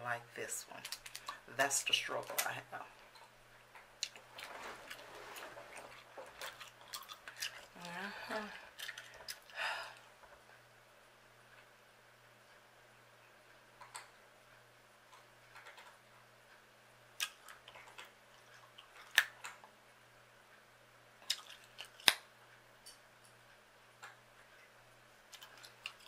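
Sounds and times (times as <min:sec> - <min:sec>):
gum chewing clicks: 0:04.0 - 0:04.4, 0:05.8 - 0:07.9, 0:08.7 - 0:09.6, 0:17.2 - 0:19.7, 0:21.2 - 0:22.2.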